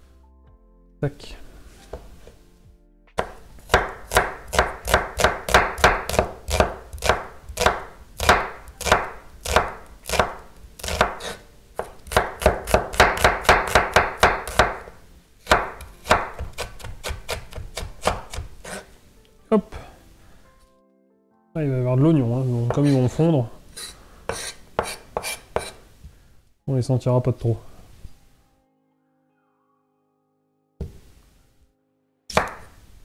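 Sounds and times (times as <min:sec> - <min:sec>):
knife chopping on wooden board: 0:03.2 - 0:18.9, 0:23.8 - 0:25.8, 0:32.3 - 0:32.7.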